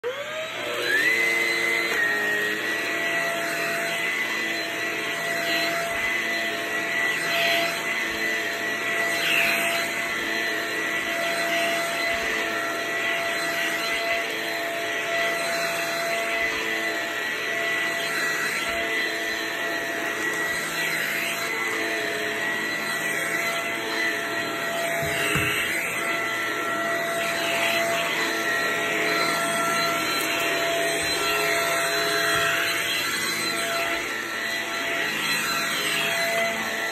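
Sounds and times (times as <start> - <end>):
vacuum motor whining: 0.0 - 36.9
brush head on carpet: 23.3 - 34.6.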